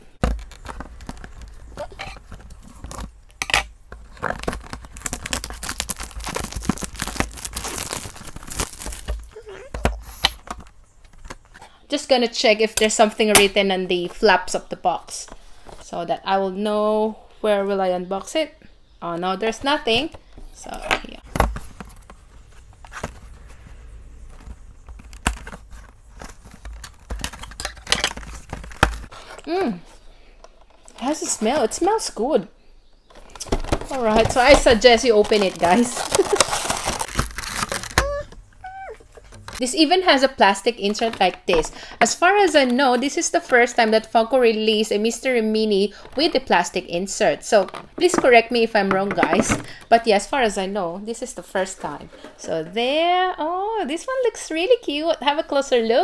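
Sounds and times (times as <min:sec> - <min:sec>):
cardboard and plastic crackles: 0:00.0 - 0:11.8, 0:19.6 - 0:32.2, 0:33.1 - 0:38.5
plastic shrink-wrap tearing: 0:04.1 - 0:09.7, 0:33.3 - 0:38.3.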